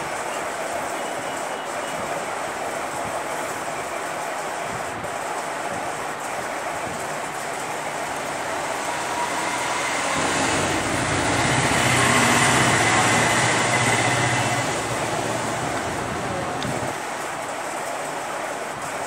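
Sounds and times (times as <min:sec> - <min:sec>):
vehicle passing: 0:07.6 - 0:17.0.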